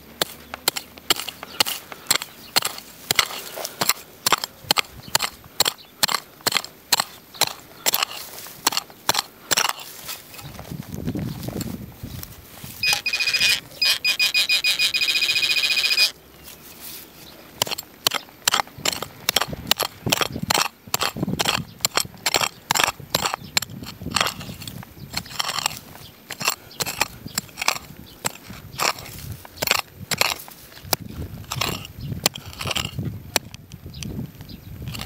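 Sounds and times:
dry grass and soil crackling: 0.0s - 35.0s
metal detector pulsing beep: 12.8s - 16.2s.

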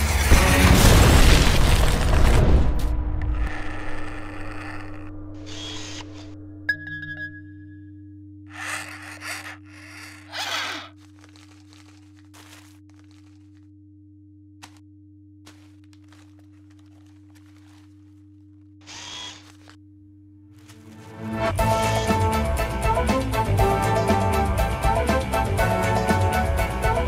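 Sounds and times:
low machine hum: 2.9s - 18.8s
mechanical whirs: 3.0s - 6.4s, 8.5s - 11.3s, 18.8s - 19.8s.

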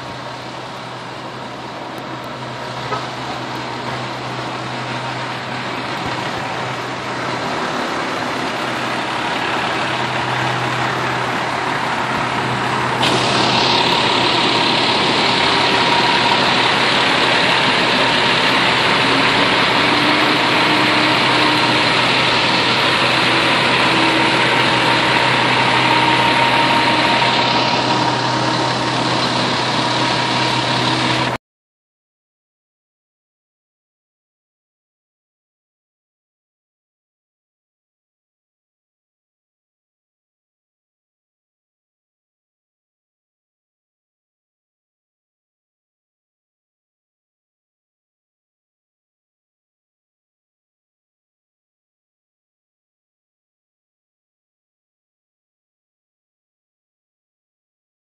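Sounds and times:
diesel engine idling: 0.0s - 31.4s.

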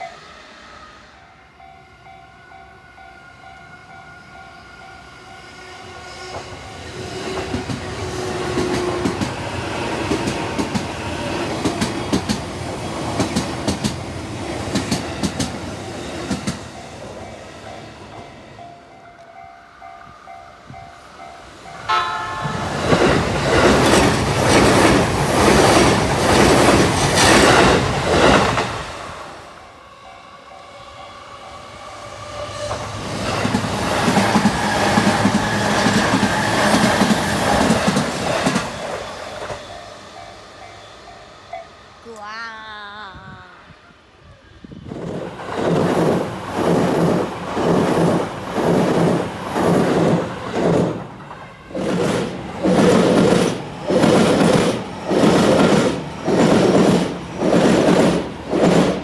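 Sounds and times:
level crossing warning bell: 1.2s - 5.6s, 16.7s - 23.1s
train wheels clacking on rail joints: 6.2s - 15.6s, 32.6s - 39.9s, 45.3s - 59.0s
train horn blast: 21.8s - 23.0s.

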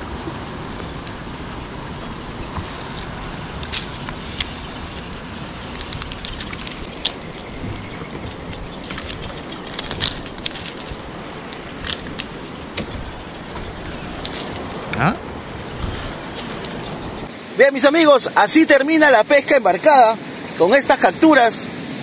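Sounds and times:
wind and sea hiss: 0.0s - 22.0s
rummaging in backpack: 2.4s - 4.6s, 5.8s - 17.3s
fishing gear clicks and rattles: 2.6s - 4.6s, 5.7s - 17.3s.

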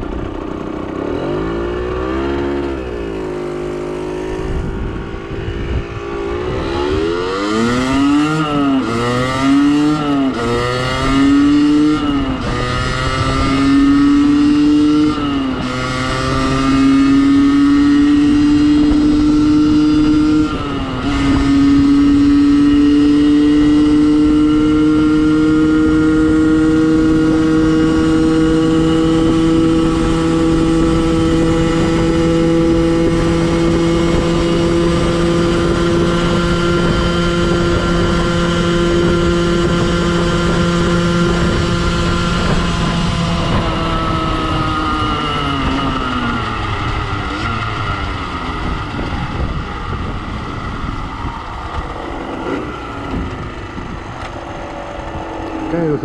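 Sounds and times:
two-stroke engine accelerating hard: 0.0s - 56.0s.

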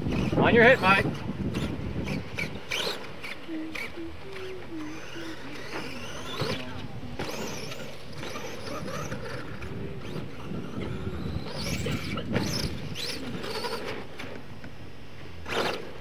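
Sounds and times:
electric motor whining: 0.0s - 16.0s
tyres scrabbling in dirt: 5.4s - 14.6s, 15.4s - 16.0s.

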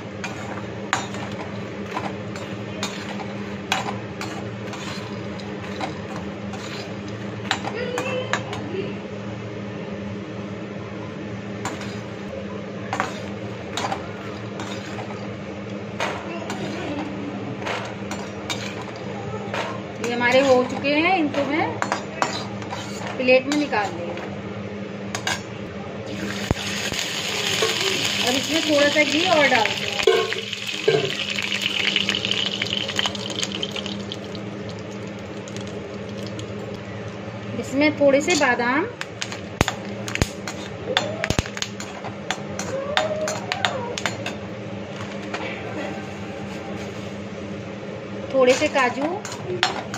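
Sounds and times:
steady low hum: 0.0s - 49.9s
ghee sizzling and crackling: 26.1s - 37.5s
metal spoon clinking against pan: 30.0s - 31.2s.

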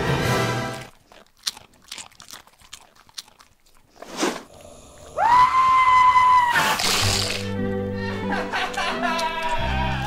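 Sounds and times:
tortilla chips crunching: 0.7s - 4.2s, 6.0s - 7.5s.

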